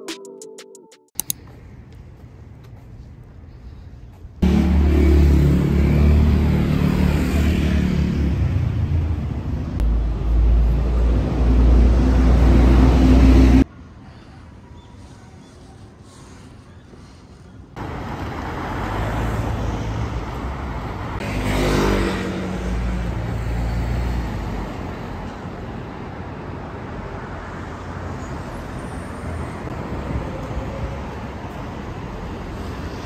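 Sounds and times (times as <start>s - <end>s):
city street traffic rumble: 1.2s - 33.0s
vehicle passing close: 4.4s - 13.6s.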